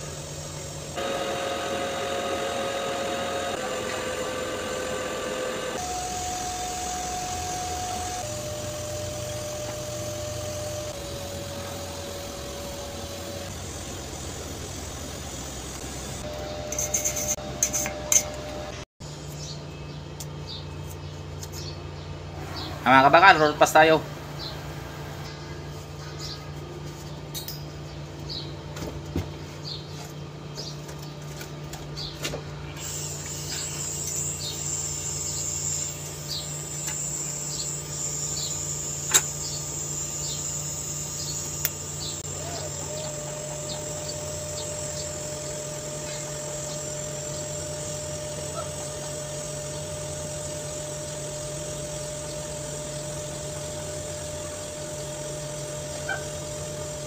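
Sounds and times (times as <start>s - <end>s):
welding arc buzzing: 0.0s - 18.9s, 32.7s - 57.0s
steady site hum: 0.0s - 57.0s.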